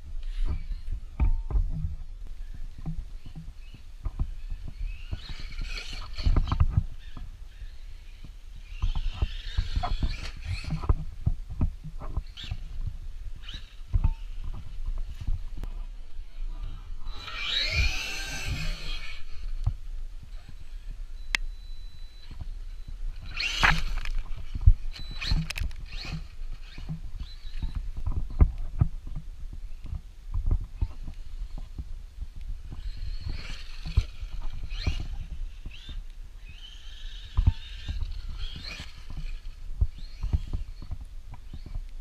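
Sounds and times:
electric motor whining: 2.4 - 21.0, 23.1 - 28.3, 32.7 - 41.9.

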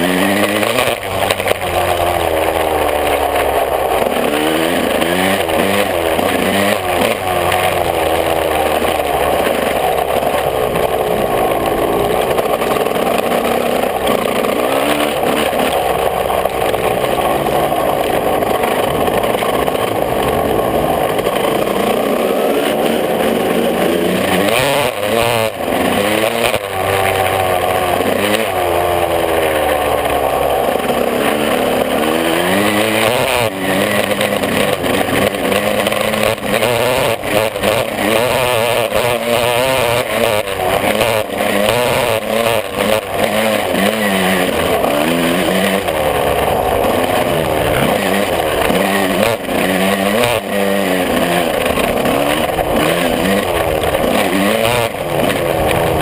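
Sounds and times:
motorbike engine revving: 0.0 - 56.0.

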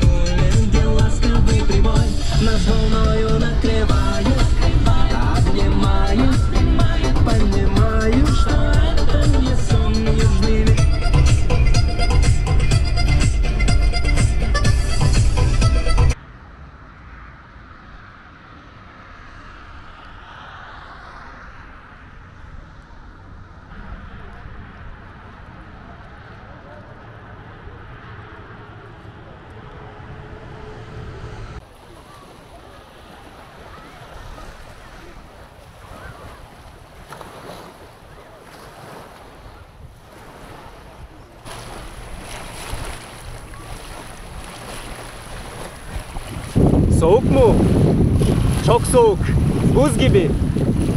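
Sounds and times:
steady road noise: 0.0 - 50.9
small waves lapping on shore: 31.6 - 50.9
wind on microphone: 33.7 - 50.9
motor vehicle passing: 40.2 - 50.9.

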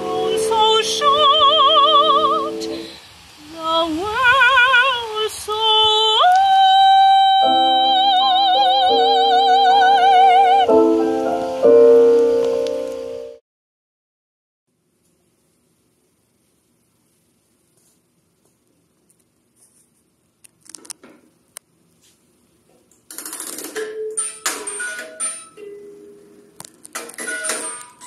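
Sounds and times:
piano chords: 0.0 - 2.9, 7.1 - 13.4
woman singing operatically: 0.0 - 11.1.

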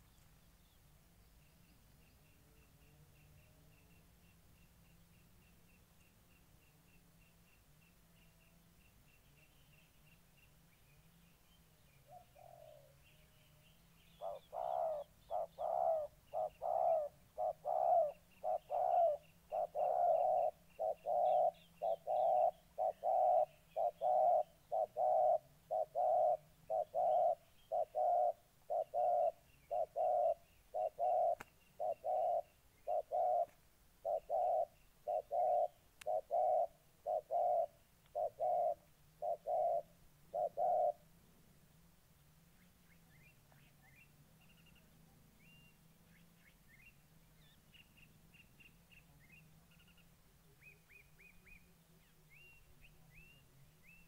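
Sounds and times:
small birds chirping: 0.0 - 54.0
dove cooing: 12.1 - 13.0, 14.2 - 41.1.

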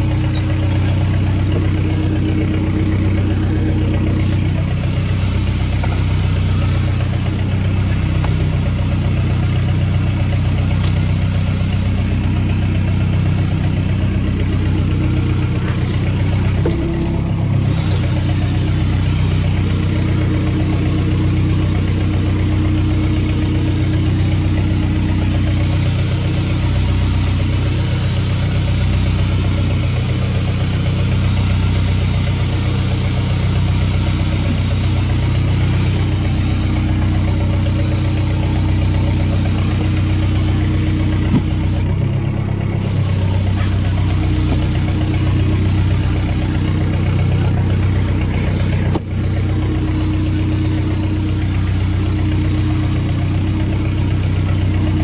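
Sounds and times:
boat engine idling: 0.0 - 55.0.

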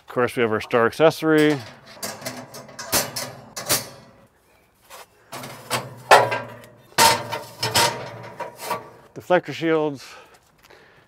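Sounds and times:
ceramic plates clattering on grill rack: 1.4 - 4.3, 5.4 - 9.1.

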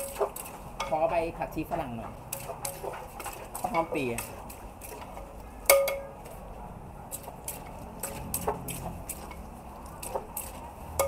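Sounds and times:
spoon knocking and scraping mortar: 0.0 - 6.1.

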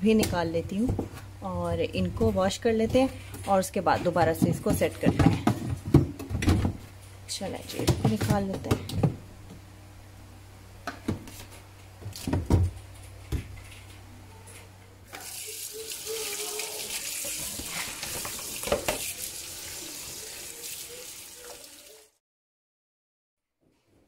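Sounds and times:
plastic baskets knocking: 3.9 - 6.9, 7.7 - 9.2
tap water running on plastic: 15.1 - 22.1.

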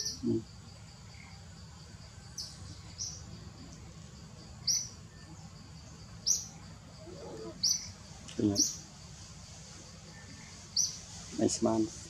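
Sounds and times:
bird chirping: 0.0 - 8.9, 9.6 - 11.8
faint insect hum: 0.0 - 12.0.

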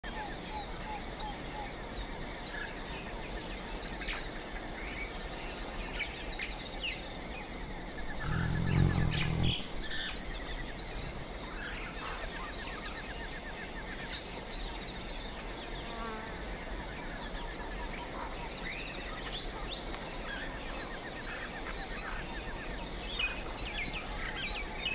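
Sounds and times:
birds chirping and calling: 8.0 - 10.4
tiger growling: 8.0 - 10.4.

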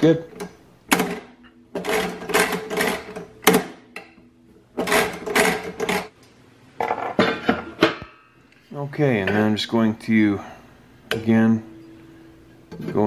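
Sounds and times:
metal ringing: 11.1 - 13.0.

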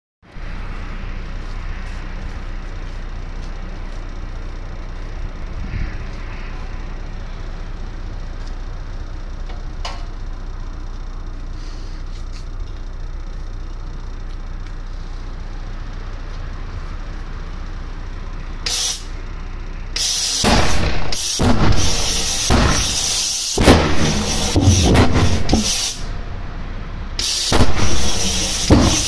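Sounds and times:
pulsejet engine ragged blasts: 0.4 - 8.2, 19.9 - 29.0
short air hiss: 18.6 - 19.1, 20.0 - 26.1, 27.2 - 29.0.

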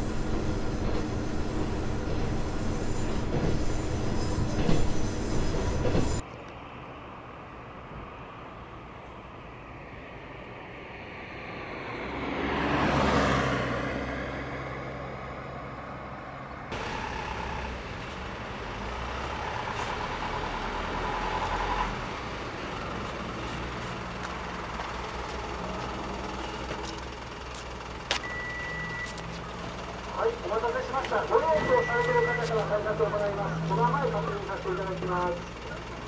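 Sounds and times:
vehicle passing: 10.2 - 28.0
large vehicle engine running: 16.7 - 36.0
short beep: 28.2 - 29.3, 31.5 - 32.6.

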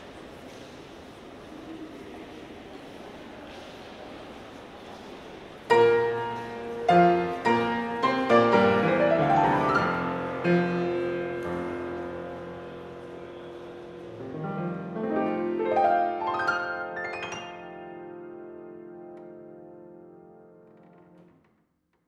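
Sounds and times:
classical piano music: 5.7 - 21.4.

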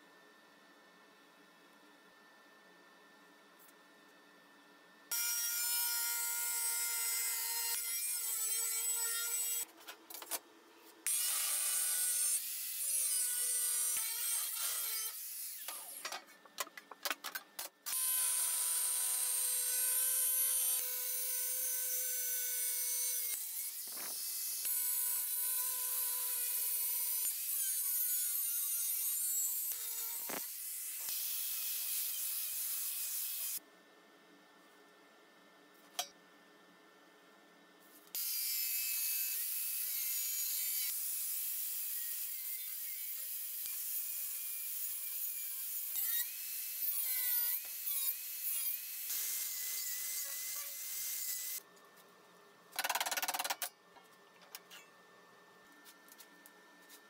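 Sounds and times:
angle grinder cutting steel: 11.1 - 16.1, 17.9 - 33.6.

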